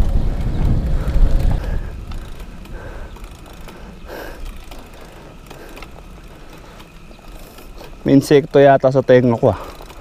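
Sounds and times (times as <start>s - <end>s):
wind rumble on microphone: 0.0s - 3.5s
bicycle ratchet clicking: 0.0s - 10.0s.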